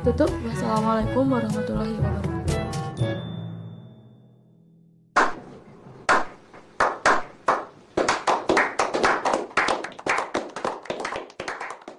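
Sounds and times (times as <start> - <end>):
hands clapping: 5.2 - 11.9.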